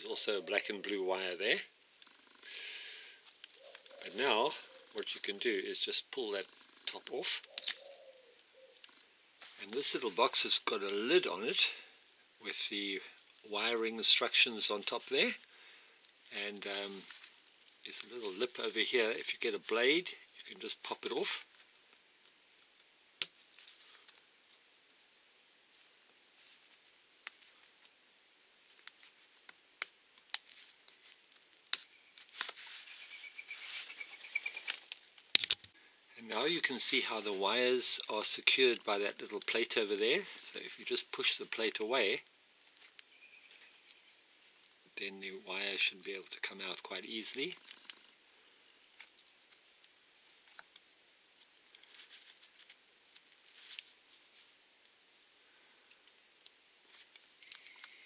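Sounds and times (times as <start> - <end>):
rustling handling: 7.0 - 12.0, 13.1 - 20.0, 30.2 - 35.6, 36.3 - 40.6, 51.4 - 54.6.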